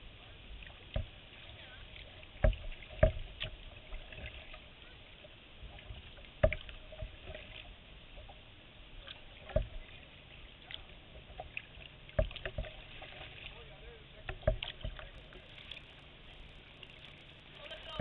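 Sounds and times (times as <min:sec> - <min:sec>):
hollow knocks on kayak hull: 0:02.4 - 0:03.6, 0:06.4 - 0:07.4, 0:12.1 - 0:12.8, 0:14.2 - 0:15.1
water wash: 0:08.9 - 0:18.0.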